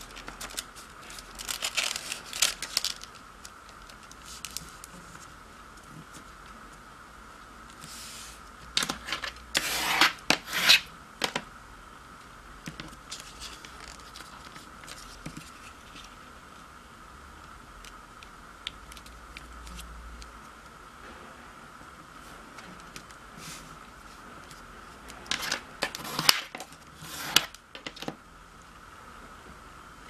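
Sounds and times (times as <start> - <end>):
faint high hum: 0.0 - 30.0
paper rustling and sliding: 25.3 - 27.5.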